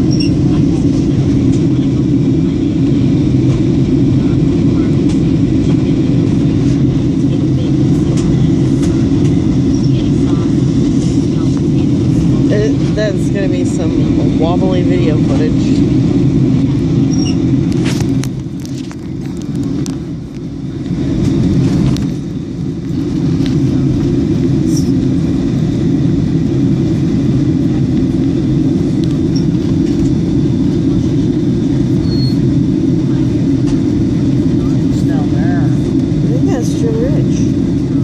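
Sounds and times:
jet engines rumbling: 0:00.0 - 0:38.0.

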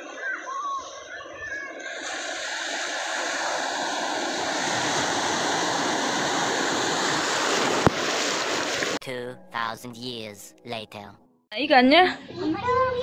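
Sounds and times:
ocean waves breaking: 0:01.8 - 0:09.0.

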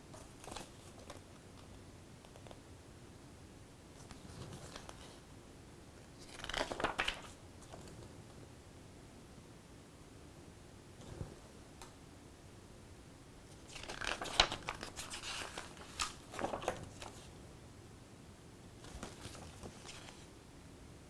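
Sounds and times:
paper pages turning: 0:00.2 - 0:01.2, 0:04.0 - 0:05.2, 0:06.2 - 0:08.0, 0:13.5 - 0:17.3, 0:18.8 - 0:20.3.

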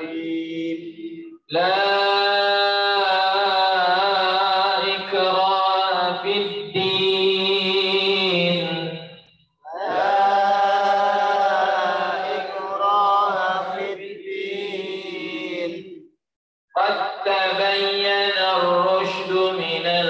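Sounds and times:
man chanting: 0:00.0 - 0:09.1, 0:16.8 - 0:20.0.

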